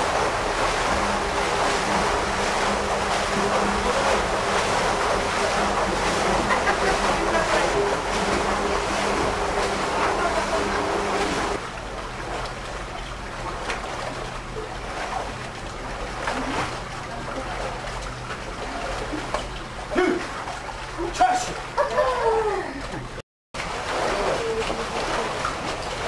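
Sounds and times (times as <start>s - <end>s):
swimmers splashing in pool: 0.0s - 11.6s, 13.4s - 26.0s
steady hum: 0.0s - 26.0s
voices: 5.1s - 11.6s.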